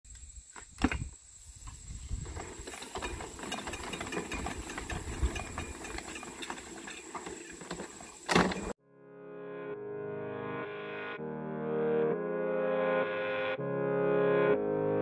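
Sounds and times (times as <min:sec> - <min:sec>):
wind rumble on microphone: 0:00.9 - 0:02.6
plastic pipe scraping and ticking: 0:02.2 - 0:08.8.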